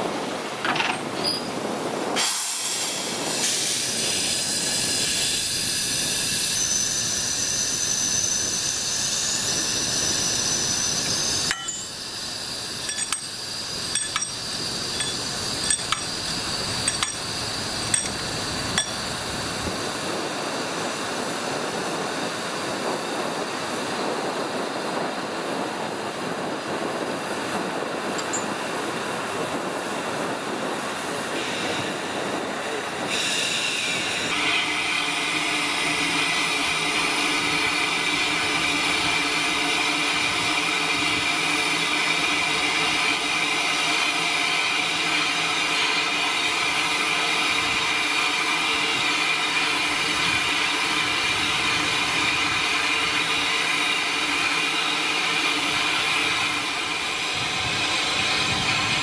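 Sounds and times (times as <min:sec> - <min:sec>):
steam locomotive hissing: 0:01.2 - 0:59.0
metal coupling clinks: 0:11.5 - 0:11.9, 0:12.8 - 0:13.3, 0:14.0 - 0:17.3, 0:17.9 - 0:19.0, 0:28.2 - 0:28.6.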